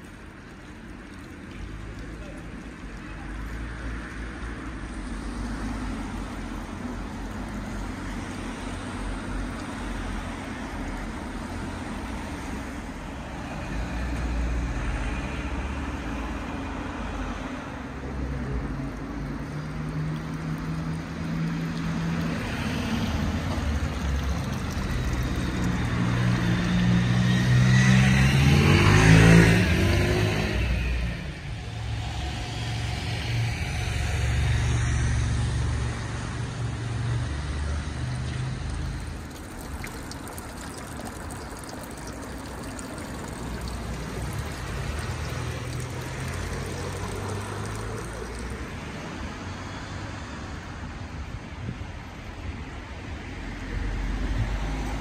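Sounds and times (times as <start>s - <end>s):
traffic rumble: 0.0s - 55.0s
vehicle engine passing close: 22.4s - 35.9s, 41.4s - 49.8s.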